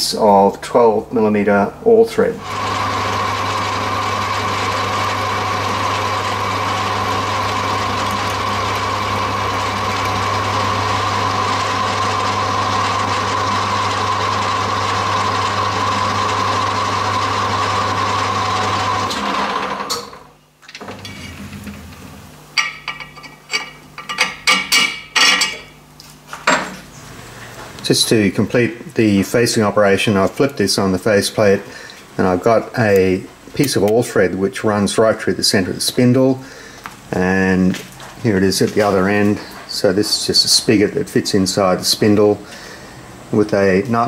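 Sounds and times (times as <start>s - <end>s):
metal lathe humming and whining: 2.4s - 20.2s.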